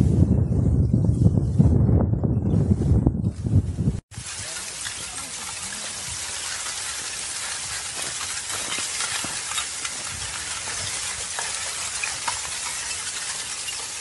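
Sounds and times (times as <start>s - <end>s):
lava crust crackling: 4.1s - 14.0s
lava flow hissing: 4.1s - 14.0s.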